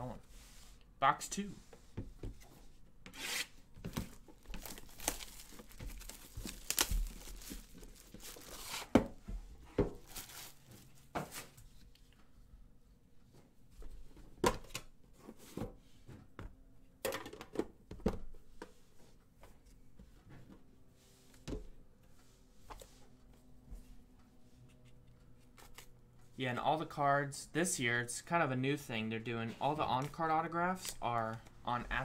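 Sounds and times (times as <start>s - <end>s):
wrapper and cardboard tearing: 3.1s - 8.9s, 10.0s - 10.8s.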